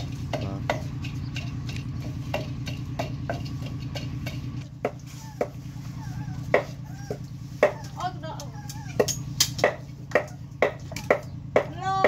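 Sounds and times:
utensil knocking against pot: 0.0 - 5.0.

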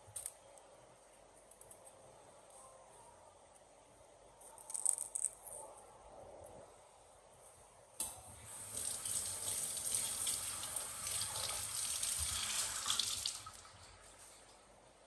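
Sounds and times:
water running into sink: 8.4 - 14.1.

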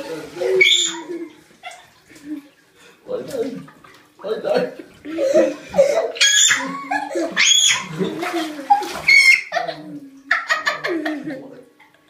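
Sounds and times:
boy laughing: 5.0 - 11.6.

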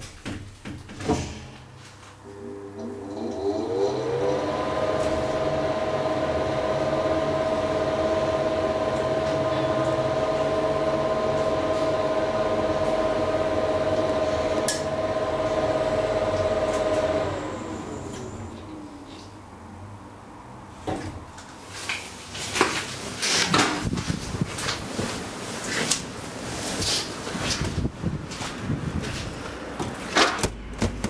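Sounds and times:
elevator pump motor whine: 2.2 - 19.0.

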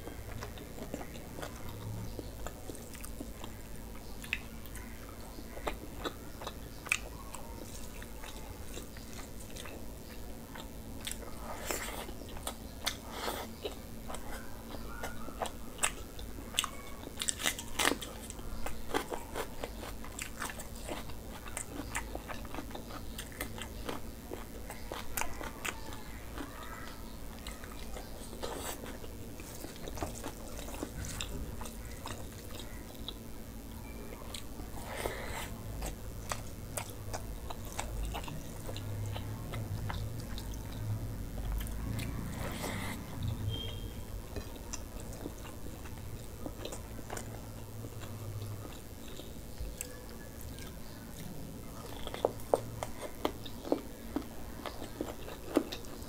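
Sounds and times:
steady low hum: 0.0 - 56.0
wet chewing and biting: 10.5 - 33.2, 34.3 - 56.0.

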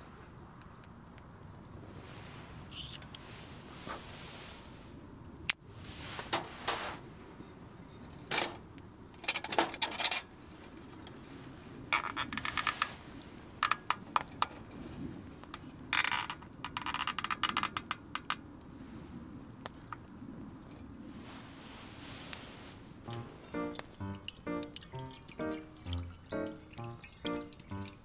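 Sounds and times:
cookware clinking and rattling: 23.8 - 28.0.

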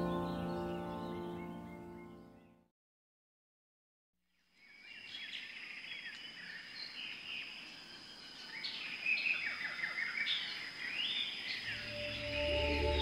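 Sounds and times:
small birds chirping: 4.5 - 13.0
steady high-pitched tone: 11.7 - 13.0.

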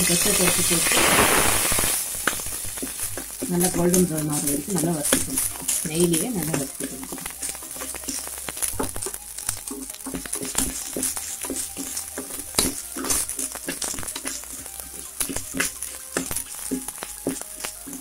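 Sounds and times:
grains rattling: 0.0 - 18.0
metal ladle scraping pan: 9.7 - 18.0.

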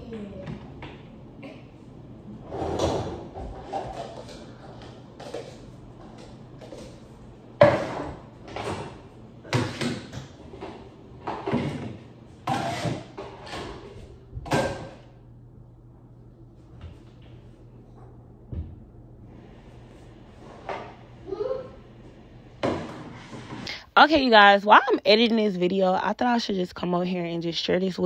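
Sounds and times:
dishes and pots clattering: 2.8 - 7.0.

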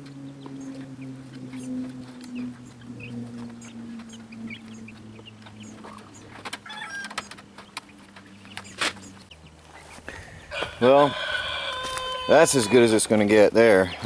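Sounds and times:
steady low drone: 0.0 - 6.6.

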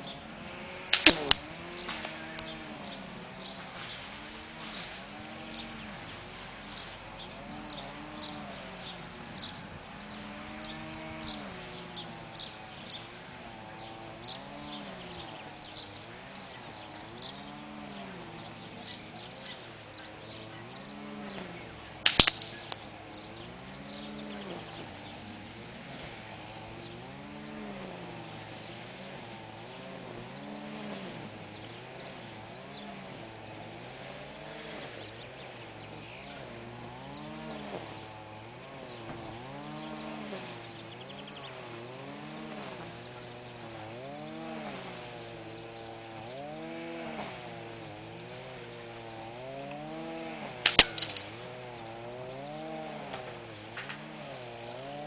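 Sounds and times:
air rifle shot crack: 22.1 - 22.6.

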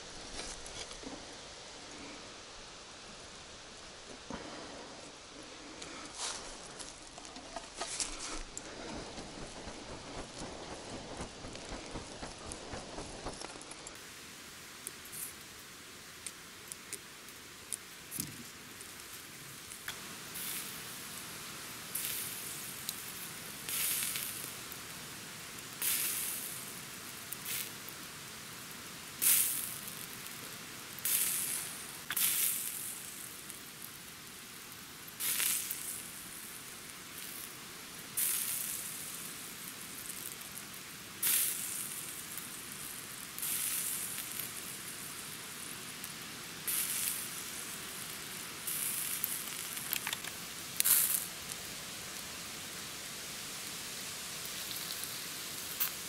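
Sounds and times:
steak sizzling on grill: 18.8 - 56.0.

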